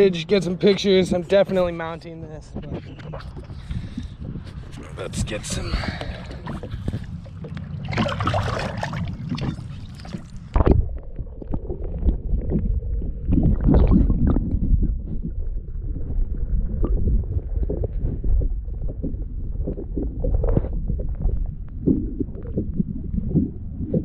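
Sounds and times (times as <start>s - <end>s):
wind: 0.0s - 24.0s
underwater rumbling and gurgling: 2.4s - 24.0s
water splashing against boat: 2.6s - 15.4s
loud splash: 7.8s - 9.6s.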